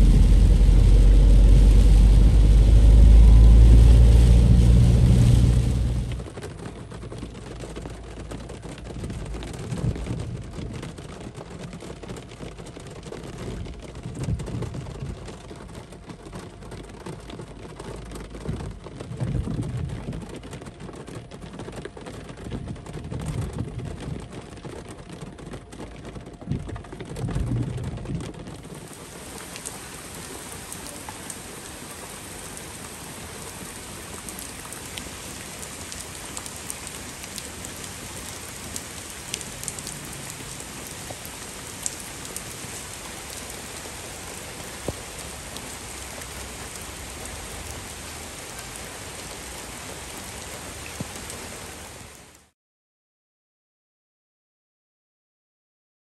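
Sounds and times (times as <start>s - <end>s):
low rumble: 0.0s - 6.4s
heavy rain on a wet street: 0.0s - 52.5s.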